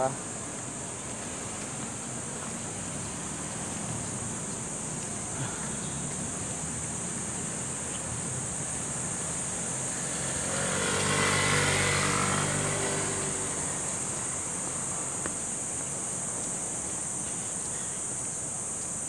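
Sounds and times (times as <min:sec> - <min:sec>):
vehicle passing: 0:05.3 - 0:15.6
high-pitched insect drone: 0:05.4 - 0:19.0.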